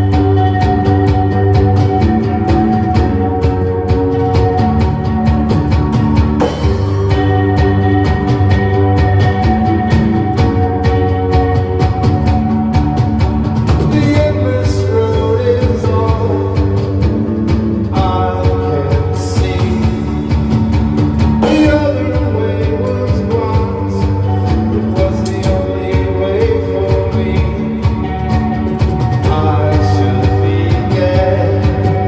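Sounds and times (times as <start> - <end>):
echo guitar: 0.0 - 32.0
rock band playing live: 0.0 - 32.0
steady drum beat: 0.0 - 32.0.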